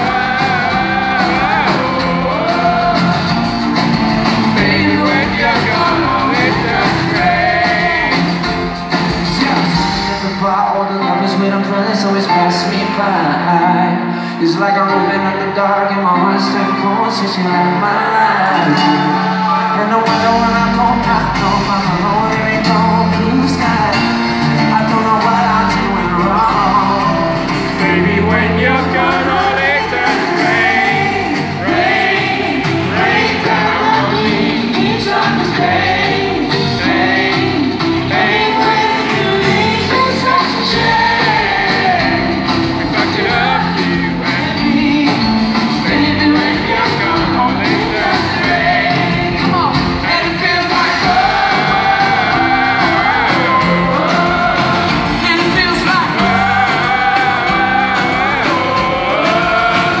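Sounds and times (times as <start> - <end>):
live pop rock band: 0.0 - 60.0
person singing: 0.0 - 60.0
crowd shouting: 46.9 - 60.0.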